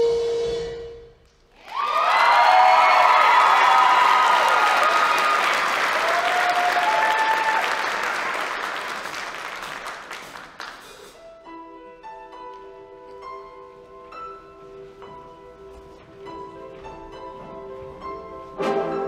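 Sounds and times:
people cheering: 0:01.6 - 0:10.7
audience applause: 0:01.6 - 0:11.2
soft piano notes: 0:11.1 - 0:19.0.

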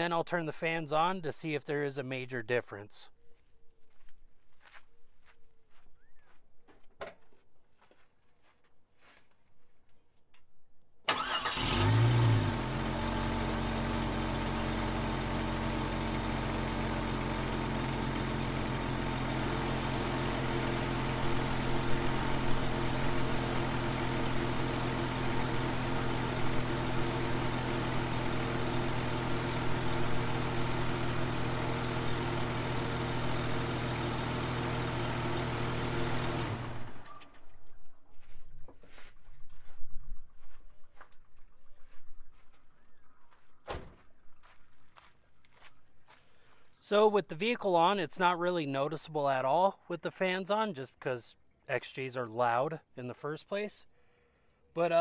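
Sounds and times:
car engine starting and idling: 0:11.1 - 0:37.4.

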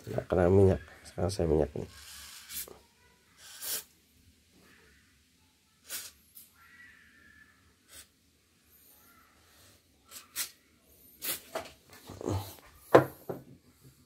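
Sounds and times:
aerosol can spraying hisses: 0:02.0 - 0:02.7, 0:03.4 - 0:03.9, 0:05.8 - 0:06.5.

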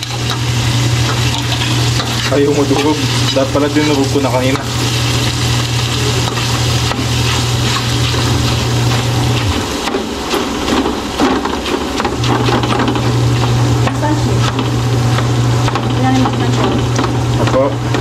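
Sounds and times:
tofu sizzling in hot oil: 0:00.0 - 0:16.1
metal ladle scraping a wok: 0:01.2 - 0:04.2.

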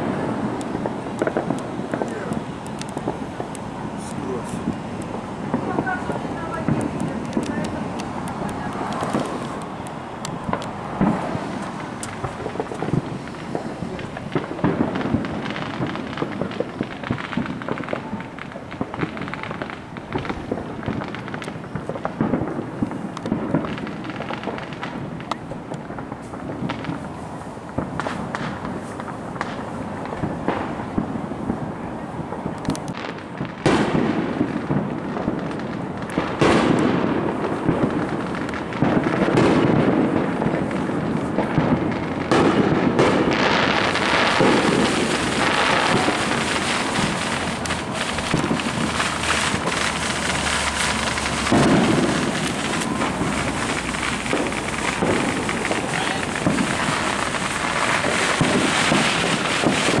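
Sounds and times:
fireworks bangs: 0:00.0 - 1:00.0
fireworks crackling: 0:00.0 - 1:00.0.

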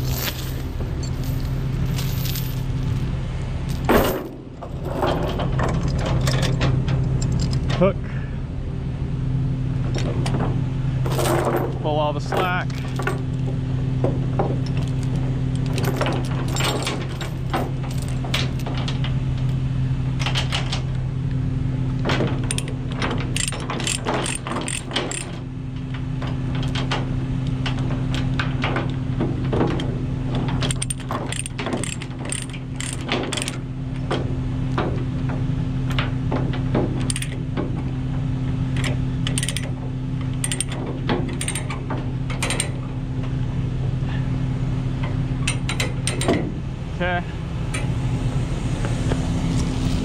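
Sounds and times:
chains clinking and rattling: 0:00.0 - 0:03.0, 0:11.1 - 0:11.7, 0:14.7 - 0:18.7, 0:23.4 - 0:25.4, 0:30.6 - 0:33.6, 0:40.3 - 0:41.7
steady low hum: 0:00.0 - 0:50.0
ratchet binder clicks: 0:22.5 - 0:22.8, 0:23.4 - 0:25.4, 0:30.6 - 0:33.6, 0:37.0 - 0:37.4, 0:38.8 - 0:39.7, 0:40.4 - 0:41.7.

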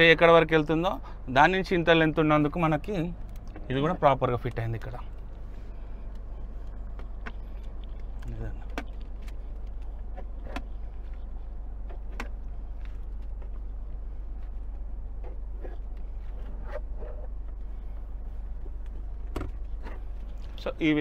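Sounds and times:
car cabin rumble: 0:00.0 - 0:21.0.

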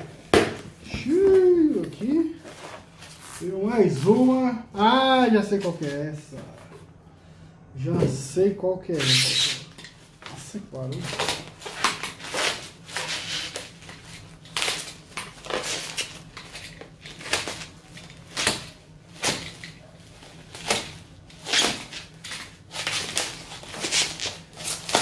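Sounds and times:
bubble wrap crinkling: 0:10.8 - 0:25.0.

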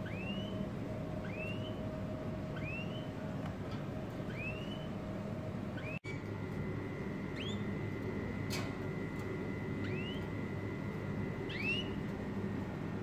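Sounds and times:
finch rising chirp: 0:00.0 - 0:01.9, 0:02.5 - 0:03.2, 0:04.2 - 0:05.0, 0:05.8 - 0:06.3, 0:07.3 - 0:07.8, 0:09.7 - 0:10.4, 0:11.4 - 0:12.0
faint steady hum: 0:00.0 - 0:13.0.

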